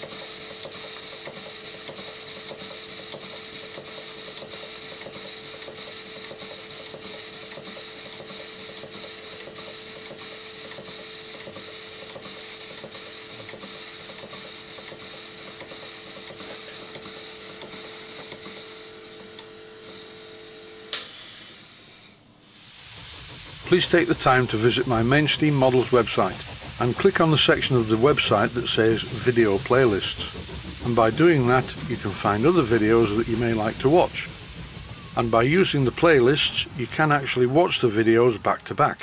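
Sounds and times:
steam pump valve gear clicking: 0.0s - 19.5s, 22.6s - 39.0s
hiss of air: 20.9s - 38.2s.

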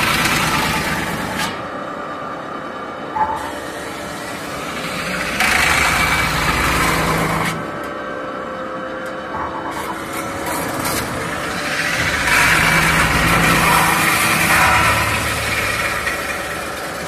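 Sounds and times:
high machine whine: 0.0s - 17.0s
metal-spinning machine humming: 3.2s - 8.0s, 9.2s - 17.0s.

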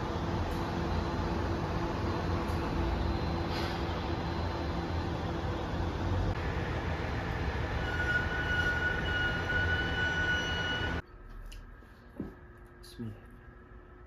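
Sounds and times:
train wheels squealing: 7.8s - 11.0s.

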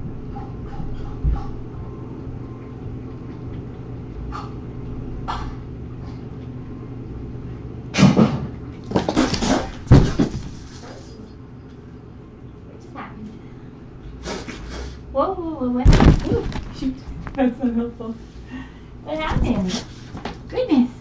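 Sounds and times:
steady low hum: 0.0s - 21.0s
kittens hissing and growling: 14.2s - 15.0s.

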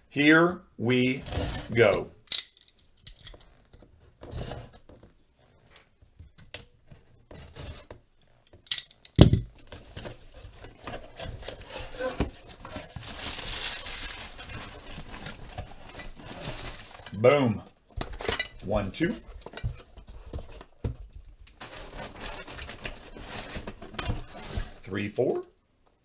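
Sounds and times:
cardboard and tape tearing: 9.6s - 17.2s, 21.6s - 24.8s.

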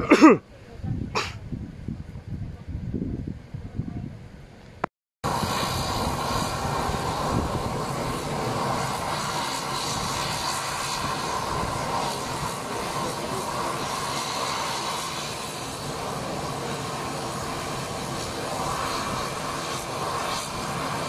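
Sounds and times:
engine whine: 4.7s - 21.0s
turboprop engines running: 5.2s - 21.0s.

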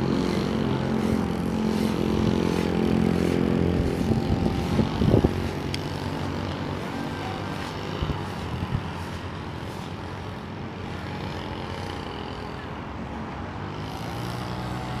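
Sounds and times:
distant propeller whine: 0.0s - 10.5s.

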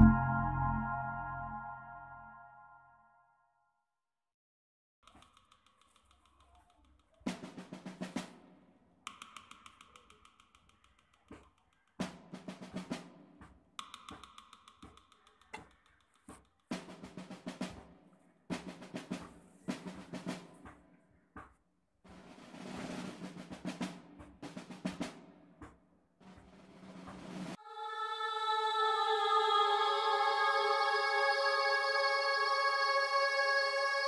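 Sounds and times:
percussion track with drum rolls: 5.1s - 27.6s.

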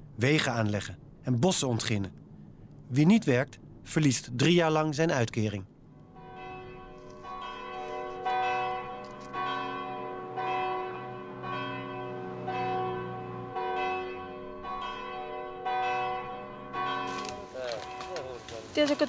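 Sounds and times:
bells ringing: 6.1s - 18.4s.

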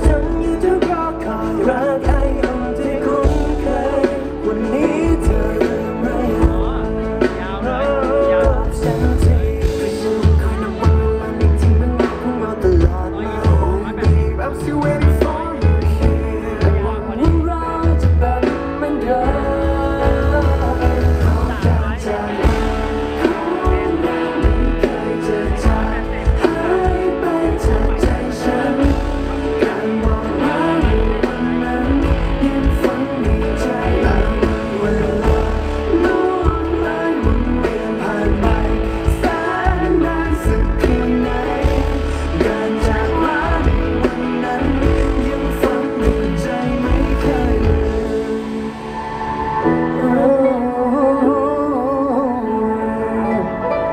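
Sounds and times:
man singing pop song with band: 0.0s - 53.9s.

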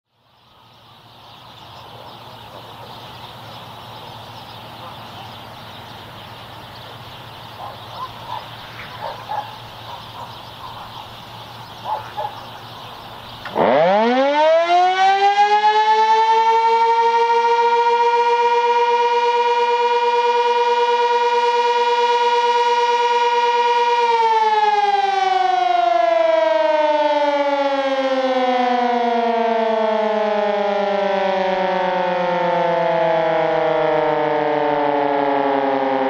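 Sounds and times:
warning siren winding: 13.4s - 24.1s.

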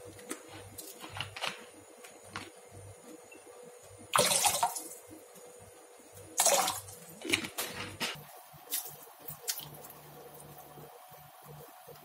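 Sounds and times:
water splashing in a basin: 4.2s - 5.0s, 6.4s - 7.0s.

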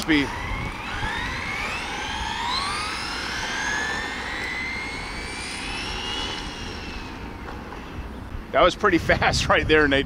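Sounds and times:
electric motor whining: 0.0s - 8.5s.

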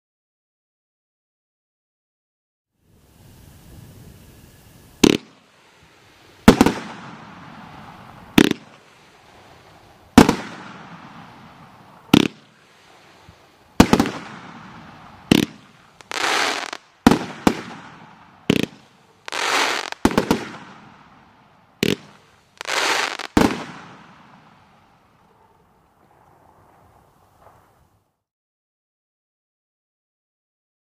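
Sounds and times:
firework hissing crackle: 2.8s - 25.2s
firework bangs echoing: 5.0s - 25.1s, 26.0s - 27.9s.

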